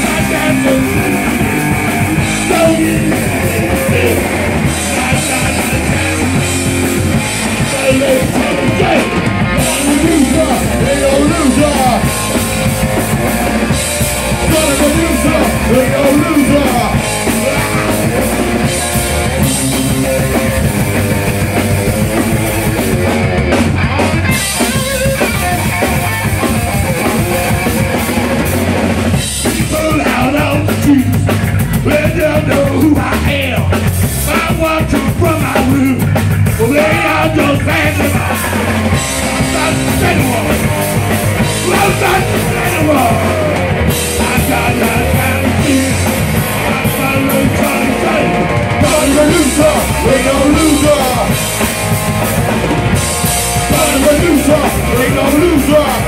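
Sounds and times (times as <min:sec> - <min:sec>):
person singing: 0:00.0 - 0:12.7, 0:14.3 - 0:18.7, 0:29.4 - 0:51.6, 0:53.6 - 0:56.0
rock band playing: 0:00.0 - 0:56.0.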